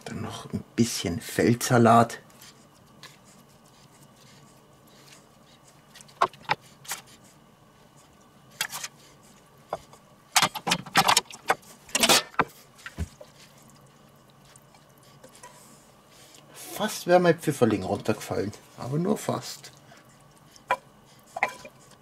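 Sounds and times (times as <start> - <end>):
metal spatula scraping on plates: 21.4 - 21.7.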